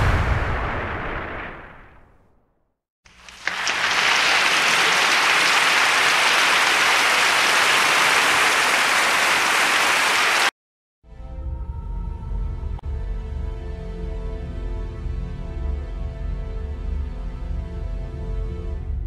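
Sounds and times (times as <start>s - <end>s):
crowd applauding: 3.1s - 10.5s
music: 11.0s - 19.0s.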